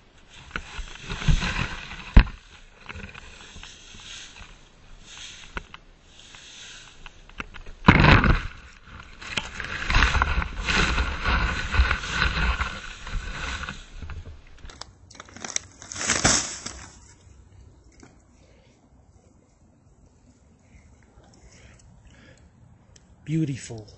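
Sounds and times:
dry leaves raked on pavement: 0.3 - 7.3, 8.5 - 14.6, 15.2 - 17.2.

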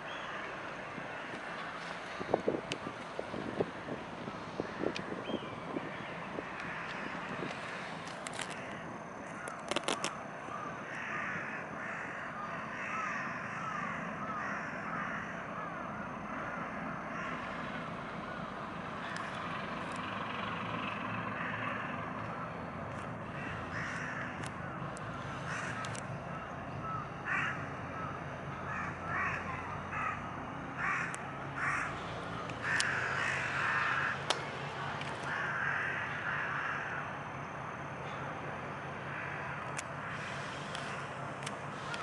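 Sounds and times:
crows cawing: 6.4 - 9.6, 10.5 - 17.6, 21.0 - 22.1, 23.2 - 26.0, 26.8 - 34.4, 35.2 - 37.2, 39.0 - 40.3.

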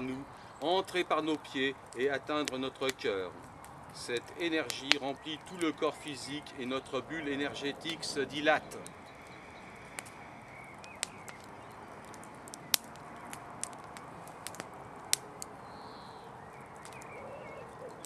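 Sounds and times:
campfire crackling and popping: 0.0 - 18.0
faint bird calls: 3.0 - 13.5, 15.5 - 18.0.

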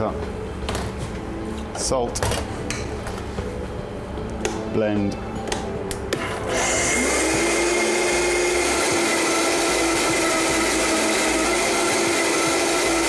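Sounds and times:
blender motor whining: 6.3 - 13.0.

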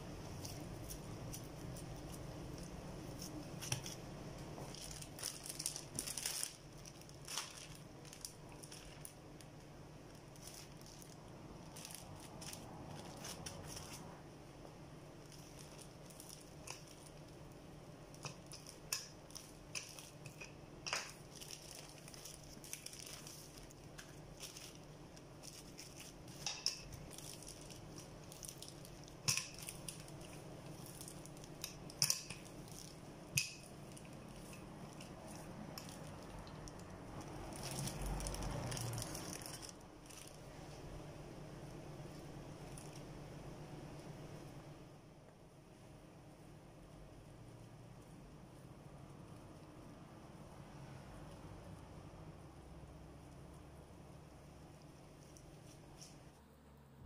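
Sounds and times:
steady low hum: 0.0 - 57.0
plastic sheeting crinkling: 0.2 - 14.2, 15.2 - 40.8.

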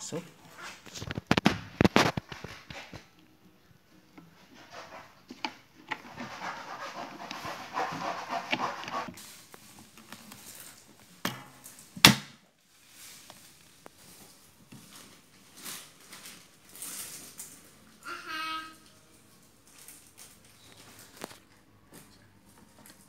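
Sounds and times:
plastic scraping on plastic: 0.5 - 3.2, 4.2 - 10.8.

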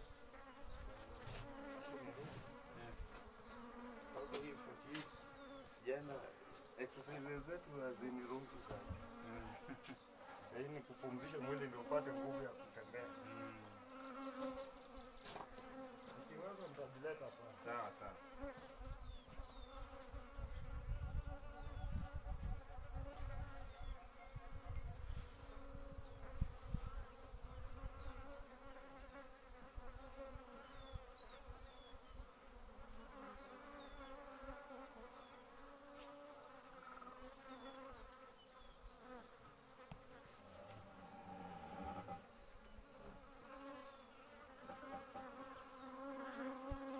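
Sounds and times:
bees buzzing: 0.0 - 46.9.

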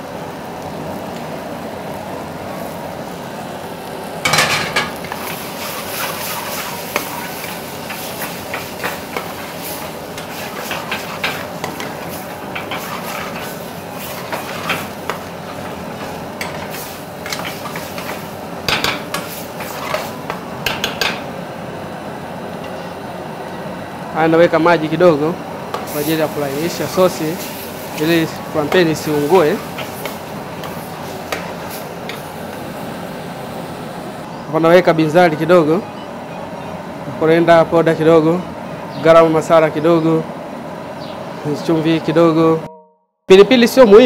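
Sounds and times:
food sizzling: 0.0 - 23.0, 24.4 - 34.3
ladle scraping a frying pan: 4.4 - 20.4.

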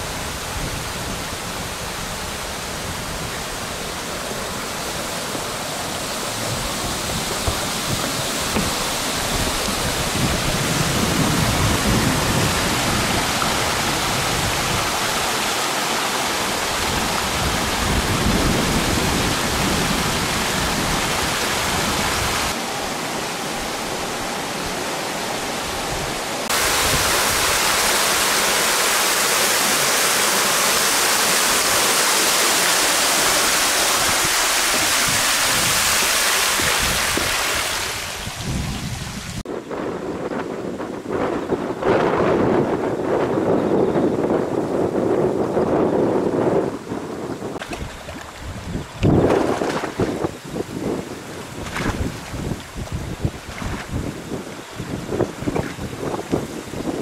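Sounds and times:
heavy rain hissing: 0.0 - 39.4
gusty wind rumbling: 0.0 - 57.0.

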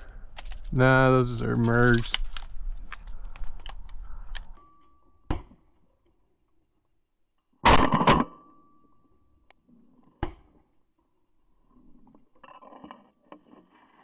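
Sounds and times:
faint steady tone: 4.5 - 6.1, 8.3 - 9.6.

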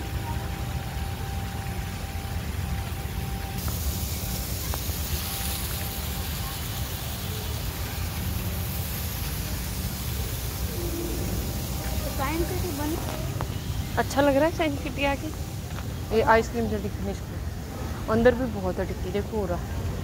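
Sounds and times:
hiss: 3.6 - 13.9.

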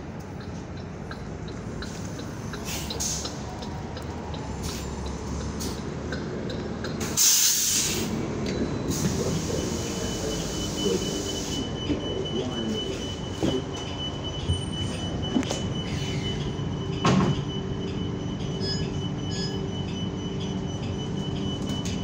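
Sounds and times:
bus engine running: 0.0 - 22.0
compressed-air hiss: 7.2 - 8.1.

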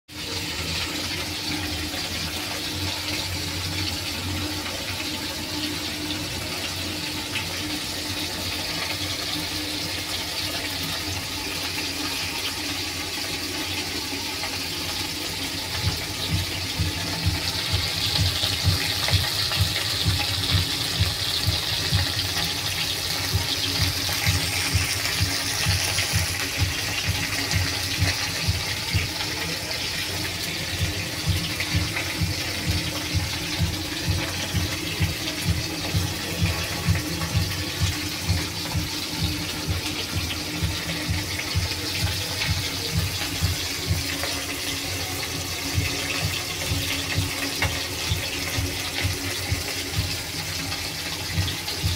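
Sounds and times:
fish sizzling in hot oil: 0.1 - 51.9
low rhythmic pulsing: 14.0 - 51.9.

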